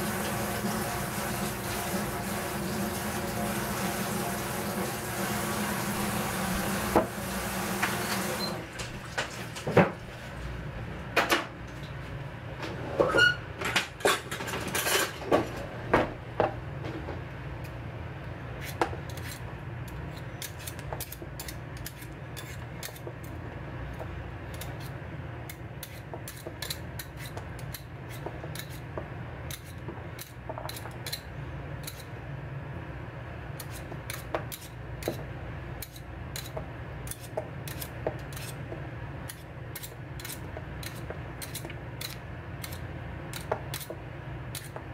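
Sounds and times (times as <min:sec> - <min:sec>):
running water: 0:00.0 - 0:09.7
potato peeling scrapes: 0:18.5 - 0:23.0, 0:33.6 - 0:35.2, 0:35.8 - 0:38.6, 0:39.3 - 0:43.9.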